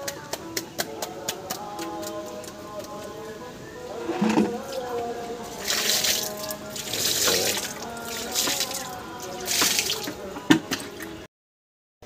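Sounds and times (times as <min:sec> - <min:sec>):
water splashing onto wet sack: 0:05.5 - 0:10.2.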